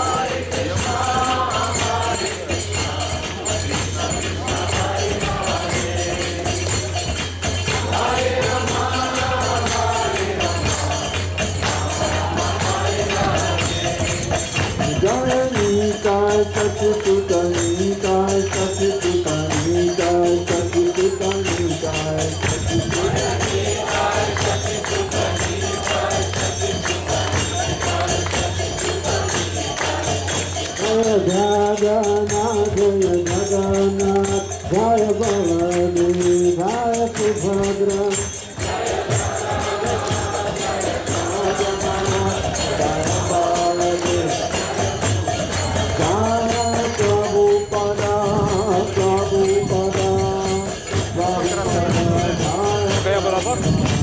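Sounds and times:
group chanting: 0.0s - 17.4s, 22.8s - 31.5s, 37.2s - 50.6s
jingling percussion: 0.0s - 54.0s.

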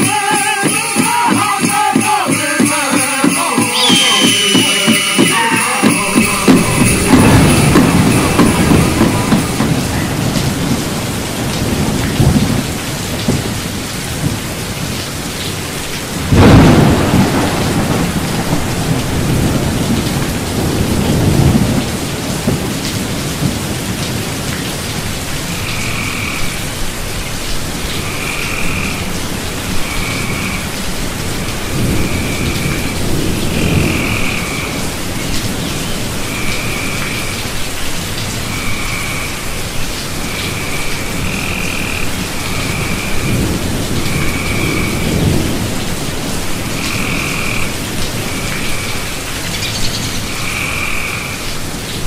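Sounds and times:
short high calls: 0.0s - 6.9s
rain falling: 0.0s - 52.0s
thunder rumbling: 3.7s - 26.8s, 27.7s - 51.4s.

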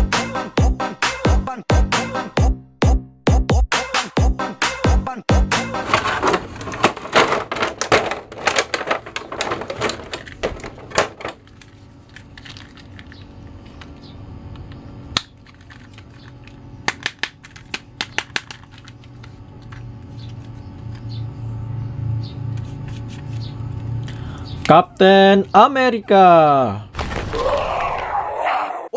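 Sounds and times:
dance music with steady beat: 0.0s - 5.8s
plastic bag crinkling: 5.8s - 13.9s.

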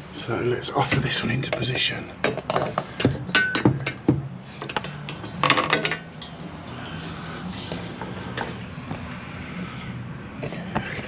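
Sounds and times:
copper pipe clinks and knocks: 1.5s - 6.8s.

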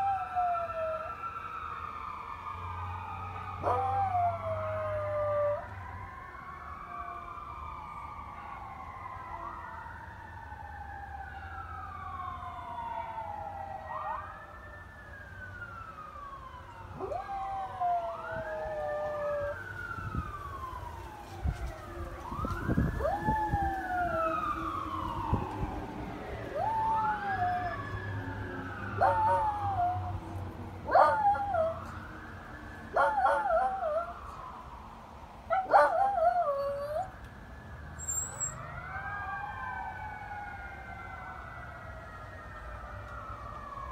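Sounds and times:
fire truck sirens wailing: 0.0s - 43.9s
small dog howling: 3.6s - 5.6s, 29.0s - 30.1s, 30.9s - 31.8s, 33.0s - 34.2s.

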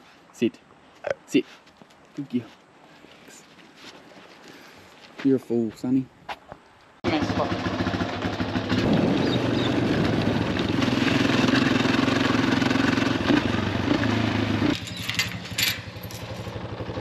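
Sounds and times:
dirt bike engine revving: 7.2s - 17.0s.

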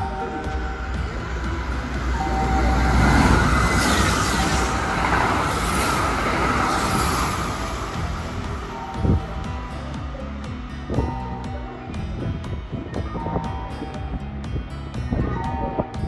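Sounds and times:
rush of air from passing train: 0.0s - 10.4s
train wheels rumbling: 0.0s - 11.2s.

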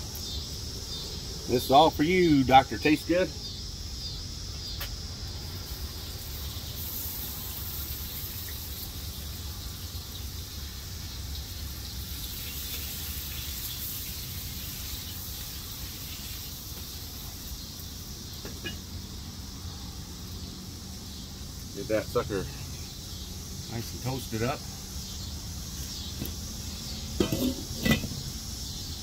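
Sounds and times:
meat sizzling in oil: 5.6s - 21.7s.

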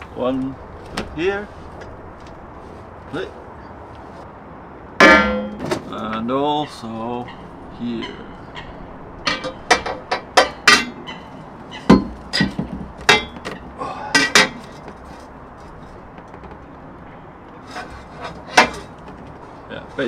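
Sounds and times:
steel knocking on metal brackets: 5.0s - 5.8s, 8.6s - 16.8s, 17.7s - 19.3s.

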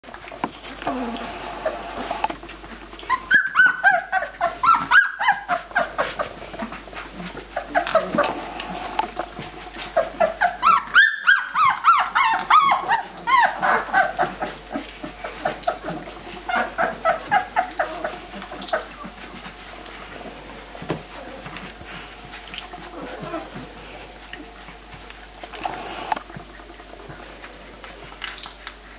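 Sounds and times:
puppies whining and yelping: 0.6s - 28.9s.

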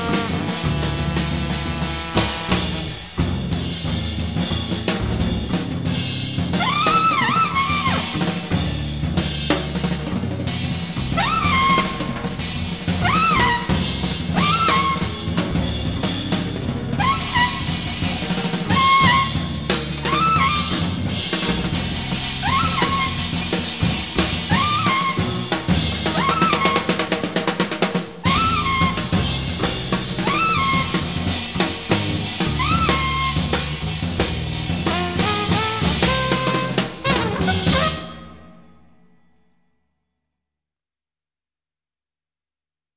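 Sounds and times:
trumpet bending notes: 0.0s - 3.0s, 6.5s - 8.2s, 11.0s - 12.4s, 13.0s - 15.3s, 17.0s - 18.1s, 18.7s - 27.0s, 30.2s - 31.3s, 34.8s - 38.6s
sustained bass notes: 0.0s - 26.4s
busy drum kit: 0.0s - 38.7s.

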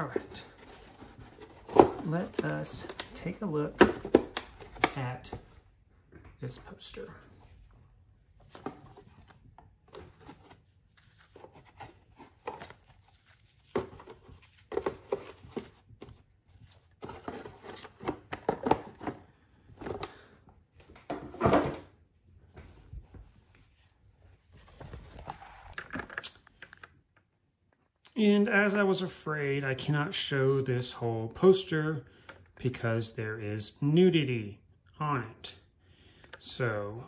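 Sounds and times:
plastic case handling: 0.0s - 5.6s, 8.4s - 21.8s.

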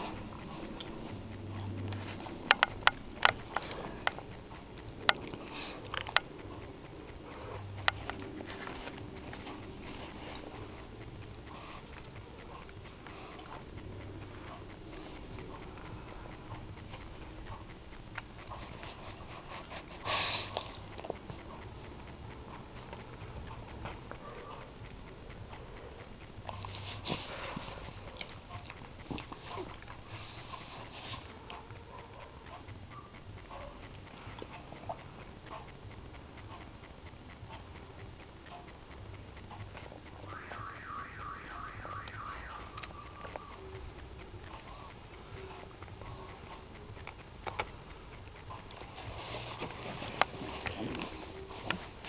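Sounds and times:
dog sniffing: 0.0s - 24.7s, 25.6s - 35.8s
faint breaths: 5.2s - 17.3s, 18.6s - 20.9s, 29.2s - 31.4s
dog snorting and snuffling: 18.4s - 21.7s
warbling high-pitched sound: 40.2s - 43.9s.

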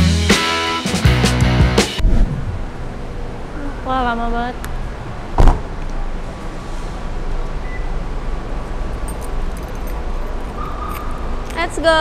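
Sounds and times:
low rumble of vehicle noise: 2.0s - 12.0s.

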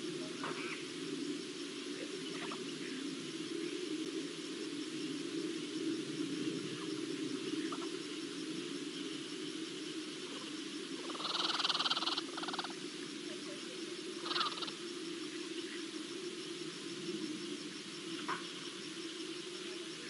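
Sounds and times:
rapid trilling animal call: 11.0s - 12.8s, 14.2s - 14.8s.

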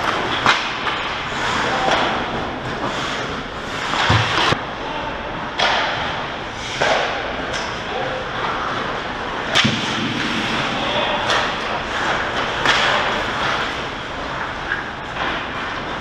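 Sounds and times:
hockey sticks and puck cracking: 0.0s - 4.6s, 5.6s - 16.0s
skate blades scraping ice: 2.6s - 4.6s.

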